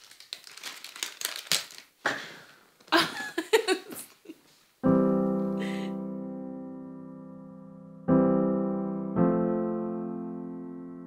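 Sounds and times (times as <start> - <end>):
people laughing and giggling: 3.0 - 4.4
sustained piano chord: 4.8 - 11.0.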